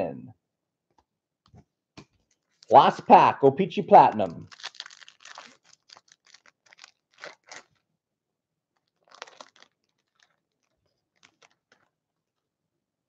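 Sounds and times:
foil wrapper crinkling: 4.4s - 8.0s, 8.7s - 12.4s.

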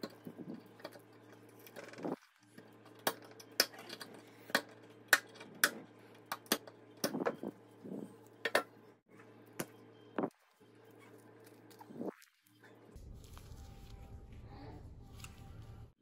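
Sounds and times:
glove rustle: 13.0s - 14.3s.

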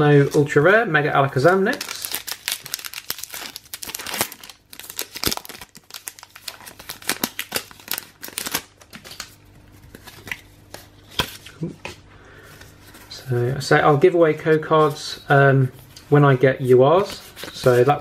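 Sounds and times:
foil wrapper crinkling and tearing: 1.4s - 10.4s.

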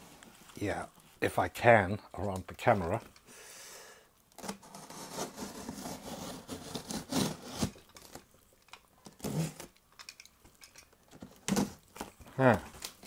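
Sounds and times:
knife slitting cardboard: 4.4s - 8.2s.

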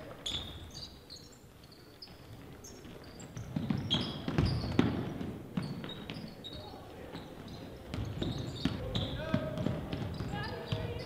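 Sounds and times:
sneakers squeaking on hardwood: 0.0s - 11.0s
basketball bouncing: 3.3s - 6.3s, 7.1s - 11.0s.

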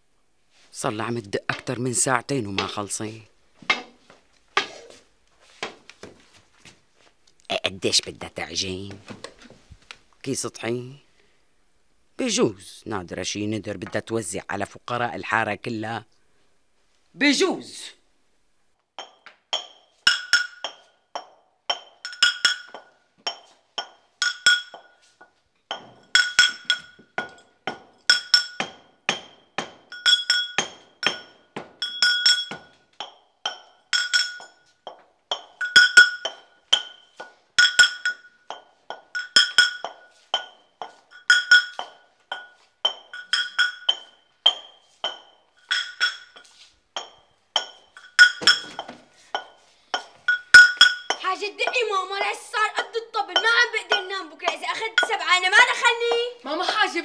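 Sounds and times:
brass pestle pounding in mortar: 2.6s - 3.0s, 19.0s - 25.0s, 25.7s - 51.9s.

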